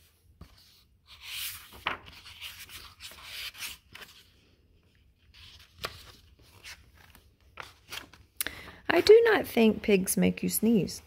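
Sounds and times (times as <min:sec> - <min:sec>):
paper crinkle: 0:01.3 - 0:04.4.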